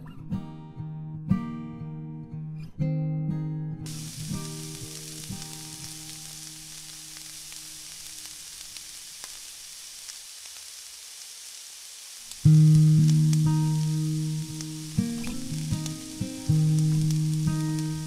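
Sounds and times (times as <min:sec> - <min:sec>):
plucked guitar-like music: 0:00.0 - 0:06.3, 0:12.4 - 0:18.0
hot oil sizzling: 0:03.9 - 0:18.0
faint clicks: 0:12.2 - 0:18.0.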